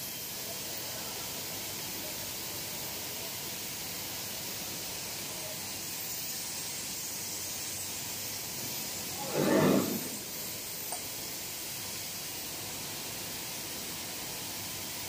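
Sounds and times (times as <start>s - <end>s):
machinery hissing: 0.0s - 15.0s.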